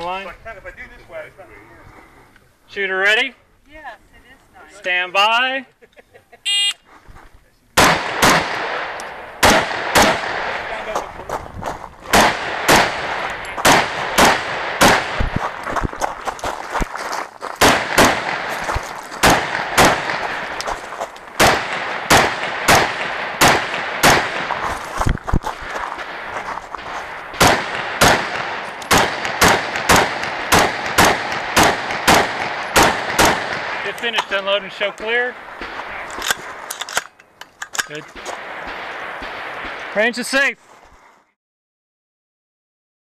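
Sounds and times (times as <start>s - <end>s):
rifle shots with echo: 7.8s - 11.2s, 12.0s - 15.7s, 17.6s - 24.9s, 25.5s - 37.0s, 38.1s - 40.3s.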